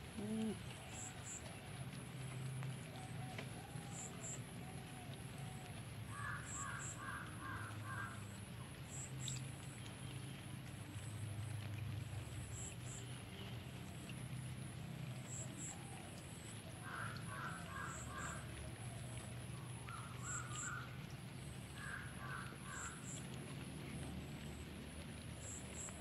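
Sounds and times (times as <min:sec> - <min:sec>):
bird calling: 0:00.1 - 0:01.5, 0:02.8 - 0:08.4, 0:16.8 - 0:23.3.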